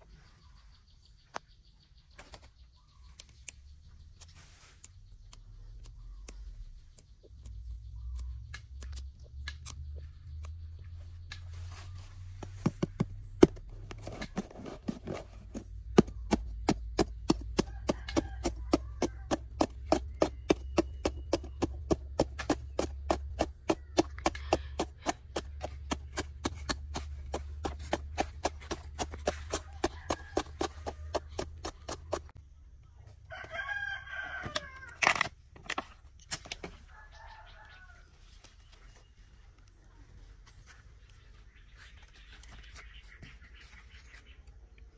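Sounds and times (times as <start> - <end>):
scattered clicks: 2.2 - 11.5.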